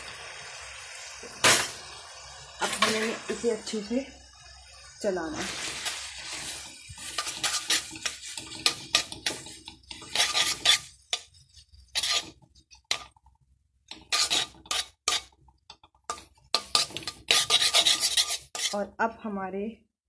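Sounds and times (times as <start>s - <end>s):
metal spatula scraping a wok: 2.6s - 3.9s, 4.7s - 13.3s, 13.9s - 18.9s.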